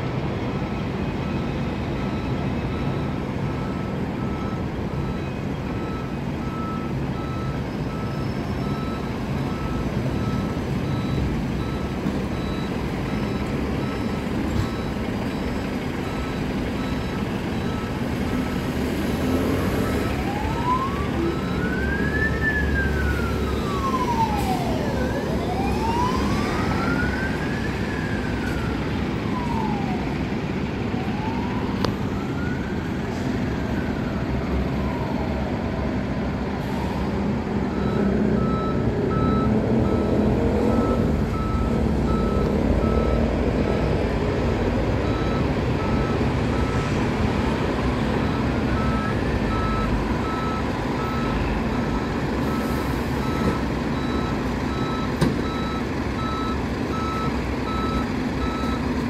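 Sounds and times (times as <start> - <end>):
engine and street traffic: 0.0 - 59.0
ambulance siren wailing: 0.5 - 36.1.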